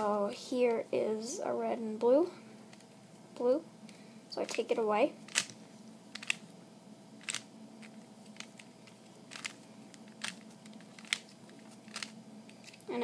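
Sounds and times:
puzzle cube layers clacking: 0:06.2 - 0:06.4, 0:07.2 - 0:12.8.

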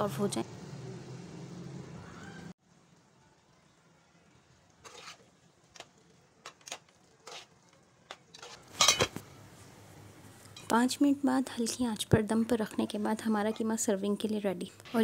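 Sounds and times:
spoon scraping a metal pan: 0:04.8 - 0:05.4, 0:06.4 - 0:09.2
metal lid clattering: 0:08.3 - 0:09.2.

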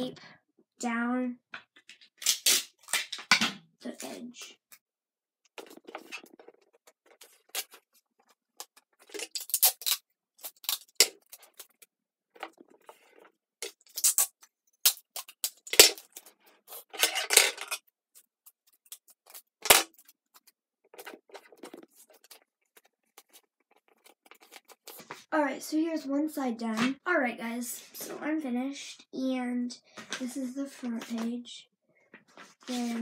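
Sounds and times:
sticky tape pulled and torn: 0:02.0 - 0:03.2, 0:08.7 - 0:11.8, 0:13.6 - 0:16.2
paper shuffling: 0:18.2 - 0:25.3, 0:32.3 - 0:33.0.

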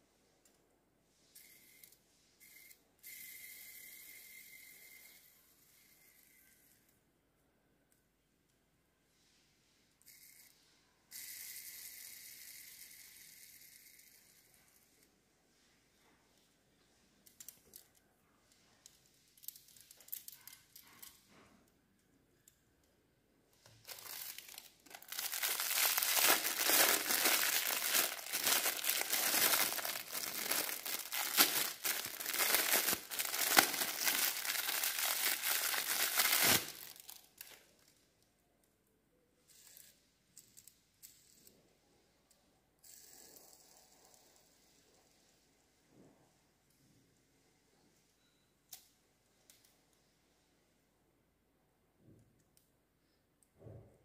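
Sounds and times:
plastic bag crinkling: 0:23.7 - 0:37.6.

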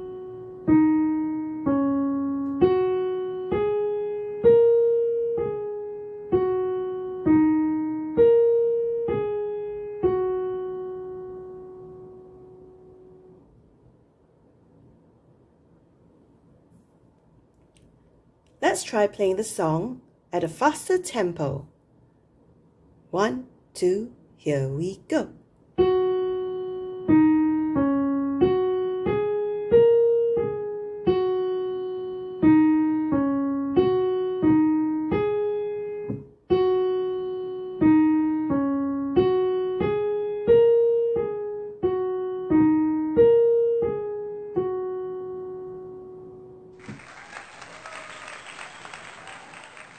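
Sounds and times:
piano tune: 0:00.0 - 0:13.6, 0:25.7 - 0:47.6
applause: 0:46.8 - 0:49.9.

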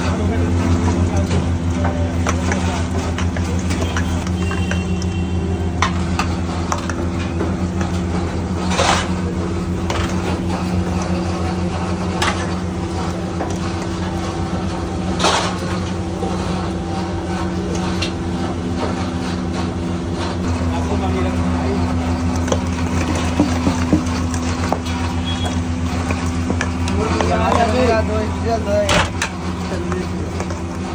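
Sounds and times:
low machine hum: 0:00.0 - 0:30.9
ladle clinking on steel bowls: 0:00.8 - 0:08.0.

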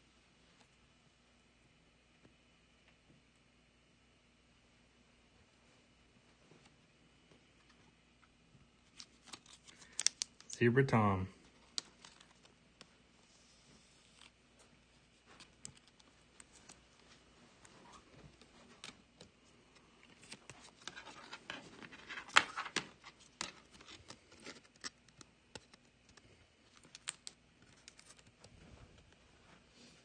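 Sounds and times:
plastic sleeve rustling: 0:08.8 - 0:10.6, 0:11.4 - 0:29.6.

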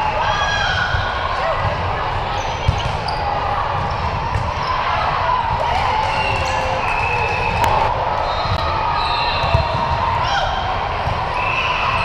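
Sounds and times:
murmur of voices: 0:00.0 - 0:12.0
sneakers squeaking: 0:00.7 - 0:10.0.

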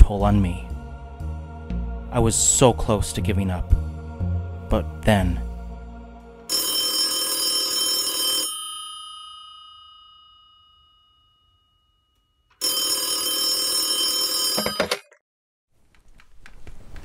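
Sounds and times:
telephone bell ringing: 0:06.5 - 0:15.1.

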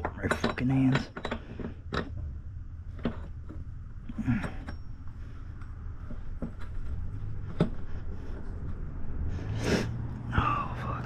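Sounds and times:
tools clicking and knocking: 0:00.0 - 0:08.8
steady low rumble: 0:00.0 - 0:11.0.

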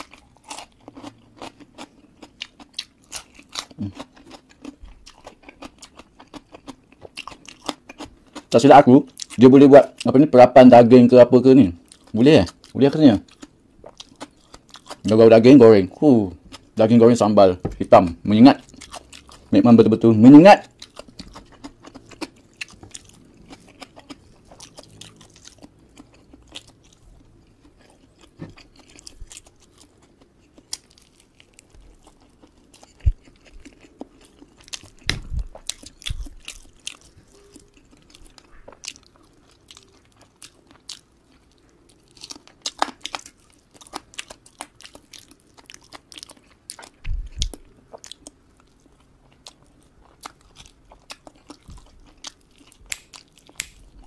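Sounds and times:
closed-mouth chewing: 0:00.0 - 0:10.2, 0:11.8 - 0:15.2, 0:20.6 - 0:54.0
crunchy bites of fried chicken: 0:20.5 - 0:54.0.

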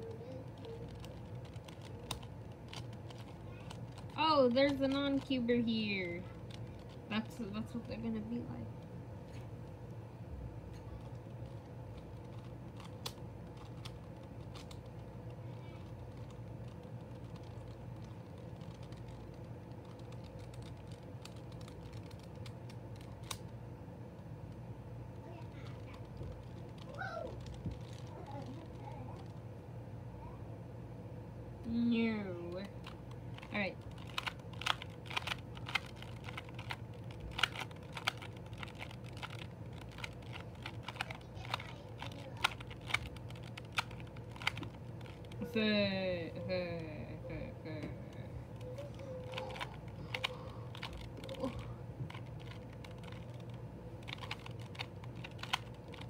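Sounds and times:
plastic puzzle cube clicking: 0:00.6 - 0:05.4, 0:11.0 - 0:23.5, 0:32.8 - 0:45.4, 0:49.3 - 0:56.0.

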